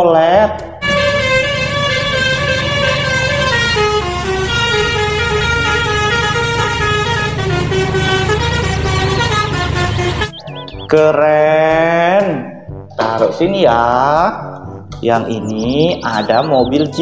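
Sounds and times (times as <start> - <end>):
musical air horns playing tune: 0.8 - 10.5.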